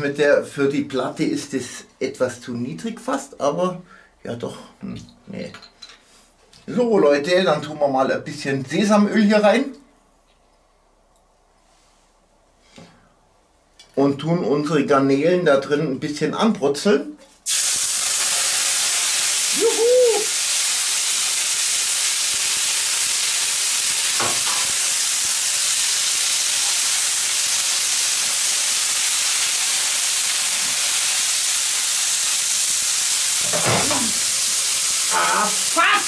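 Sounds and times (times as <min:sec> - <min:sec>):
prawns sizzling on a griddle: 0:17.4 - 0:36.0.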